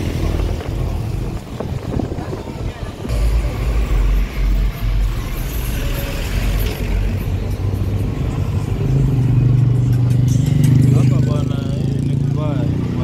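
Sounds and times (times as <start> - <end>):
heavy vehicle engine rumble: 0.0 - 12.7
engine drone: 2.9 - 12.6.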